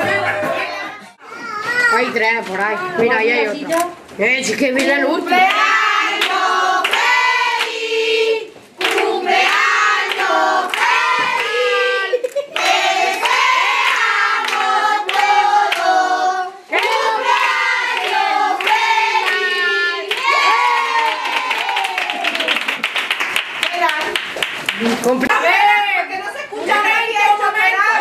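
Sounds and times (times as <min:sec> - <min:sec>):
rhythmic hand clapping: 0:04.8 - 0:07.9, 0:08.8 - 0:25.2
group of voices singing: 0:04.9 - 0:20.9.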